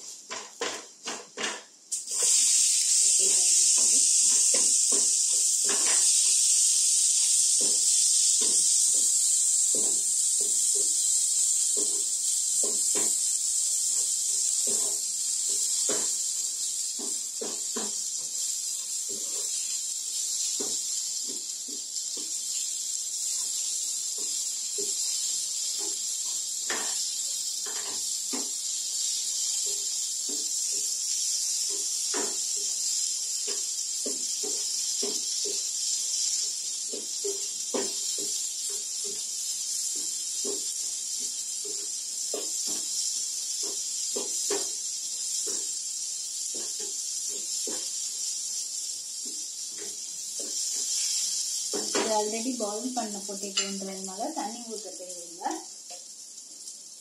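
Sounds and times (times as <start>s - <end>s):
potatoes sizzling in oil: 0.0s - 57.0s
wooden spatula scraping a pan: 3.1s - 6.4s, 13.9s - 19.8s.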